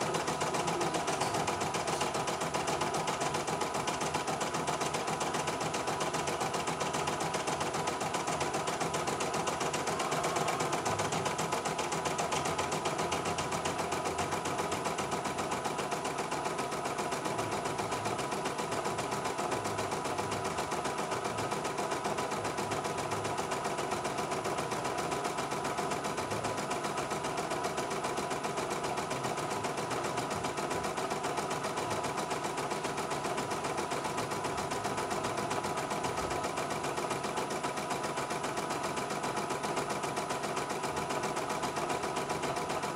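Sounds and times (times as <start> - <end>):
embroidery machine stitching: 0.0 - 42.9.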